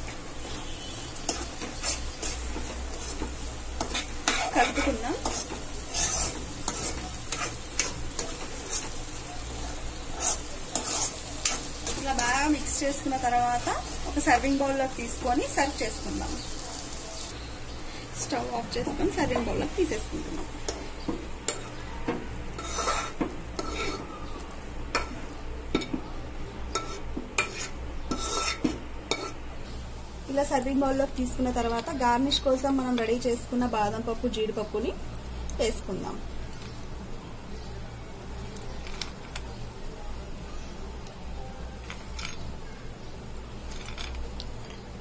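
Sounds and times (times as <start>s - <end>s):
spoon scraping a pan: 0.4s - 17.4s, 22.5s - 26.0s, 26.7s - 29.4s.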